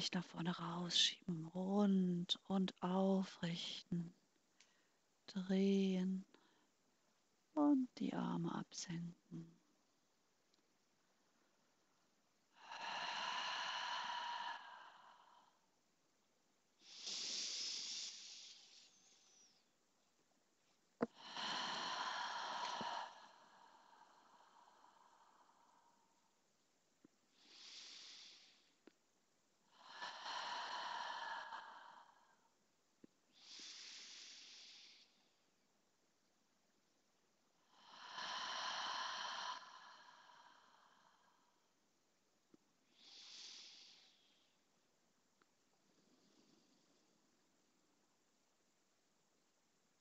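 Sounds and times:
woman breathing deeply: 12.5s - 15.8s, 16.8s - 19.7s, 21.0s - 26.4s, 27.3s - 28.9s, 29.6s - 32.6s, 33.3s - 35.5s, 37.6s - 41.8s, 42.8s - 44.7s.

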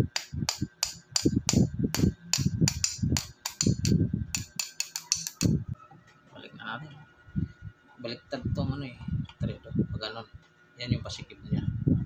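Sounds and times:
wrench clicking on metal nut: 2.4s - 5.5s.

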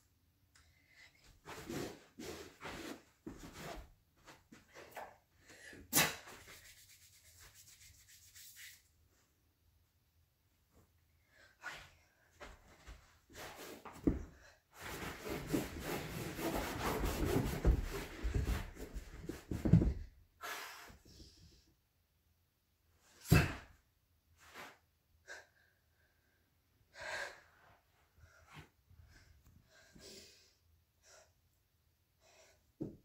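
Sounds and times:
rustling and thumps on carpet: 12.4s - 20.2s.

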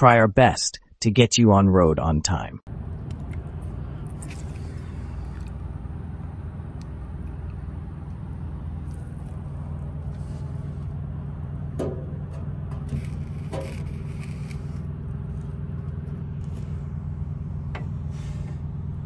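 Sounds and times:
diesel truck engine idling: 2.7s - 19.0s
short scrape: 12.8s - 14.9s, 18.1s - 18.6s.

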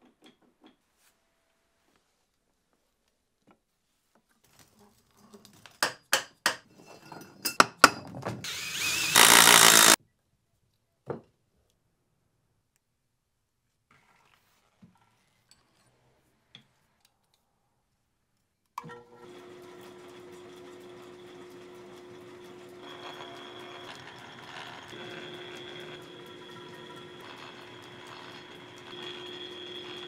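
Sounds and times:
drill press humming: 8.5s - 10.0s, 19.1s - 30.0s.

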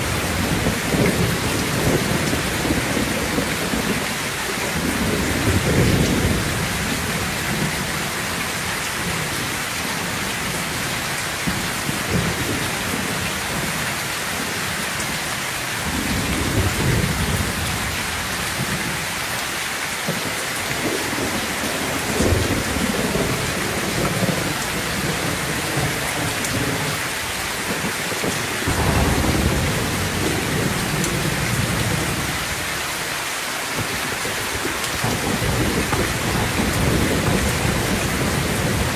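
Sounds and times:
heavy rain pouring: 0.0s - 38.9s
thunder rumbling: 21.0s - 32.9s, 33.8s - 38.9s.

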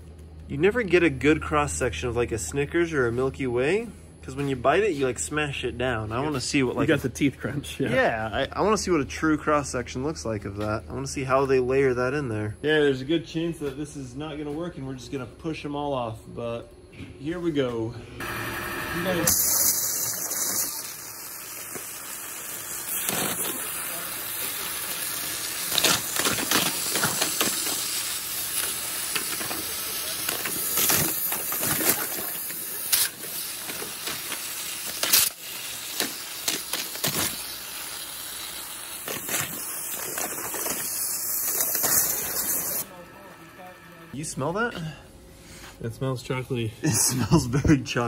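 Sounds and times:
waterjet cutter hissing: 18.2s - 45.0s
sharp cracks and pops: 19.3s - 42.8s.

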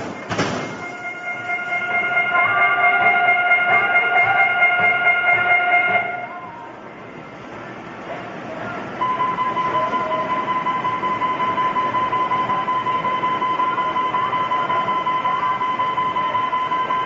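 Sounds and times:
din of arcade machines: 0.0s - 17.0s
high pulsing electronic tone: 0.8s - 7.4s.

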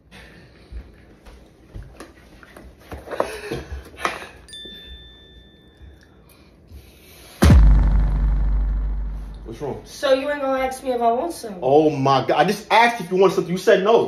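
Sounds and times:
loud boom: 7.4s - 10.0s
low rumble: 7.4s - 10.0s.

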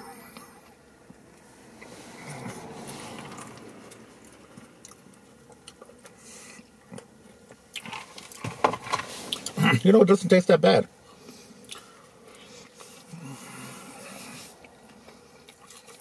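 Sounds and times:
person chewing food: 0.2s - 9.6s, 11.1s - 16.0s
wet mouth clicks: 11.6s - 11.9s.

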